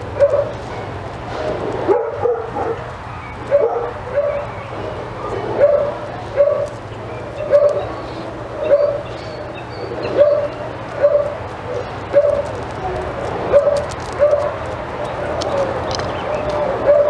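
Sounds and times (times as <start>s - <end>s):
dog barking in high yips: 0.2s - 0.6s, 1.9s - 2.8s, 3.5s - 4.5s, 5.6s - 6.7s, 7.4s - 7.9s, 8.6s - 9.0s, 10.1s - 12.6s, 13.5s - 14.6s, 16.7s - 17.0s.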